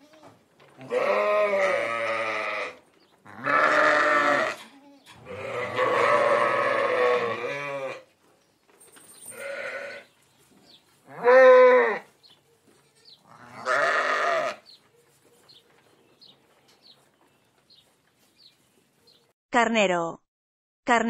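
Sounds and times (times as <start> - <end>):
sheep bleating: 0.0 - 8.0, 9.3 - 10.1, 11.0 - 12.1, 12.8 - 14.7.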